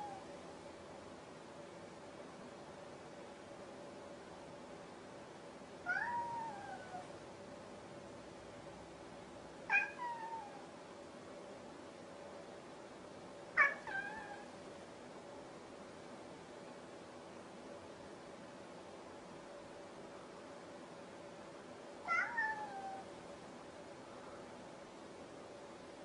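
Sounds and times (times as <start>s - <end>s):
cat meowing: 0.0s - 0.2s, 5.9s - 7.1s, 9.7s - 10.7s, 13.6s - 14.5s, 22.0s - 23.1s.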